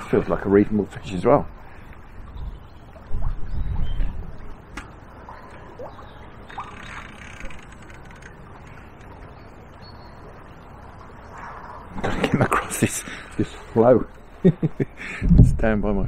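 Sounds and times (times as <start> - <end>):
wind buffeting microphone: 0.0 - 4.7, 15.2 - 16.0
flowing river water: 0.0 - 15.2.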